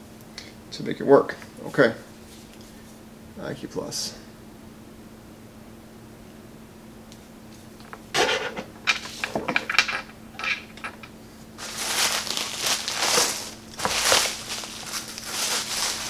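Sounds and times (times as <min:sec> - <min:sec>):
bubble wrap crinkling: 0:11.6 - 0:16.0.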